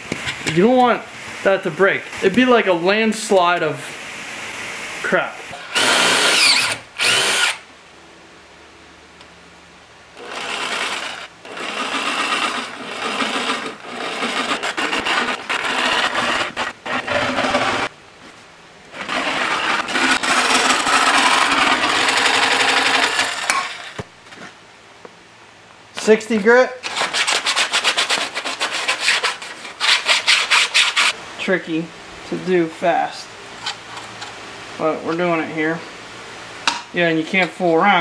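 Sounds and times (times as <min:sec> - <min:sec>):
jigsaw cutting plastic: 0:05.6 - 0:07.6, 0:10.2 - 0:17.9, 0:18.9 - 0:24.0, 0:26.8 - 0:31.1.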